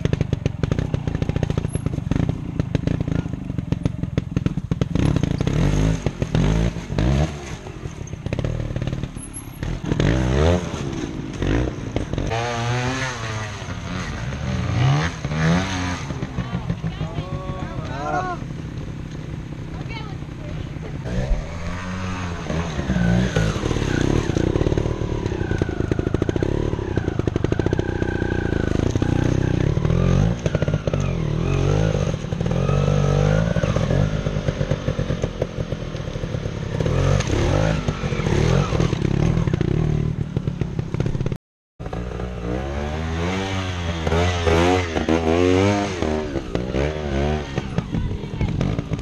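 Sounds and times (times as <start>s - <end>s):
motorcycle engines revving: 0.0s - 49.0s.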